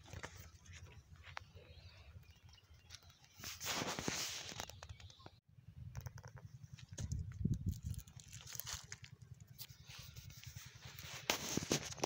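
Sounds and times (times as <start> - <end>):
microphone handling rustle: 3.4 - 5.0, 9.6 - 12.0.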